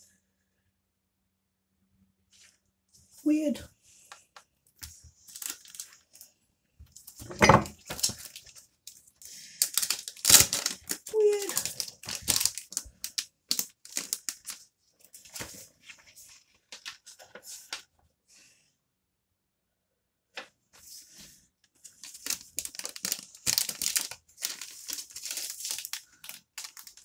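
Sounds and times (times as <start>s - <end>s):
paper pages rustling: 4.8s - 6.3s, 6.9s - 17.9s, 20.8s - 27.0s.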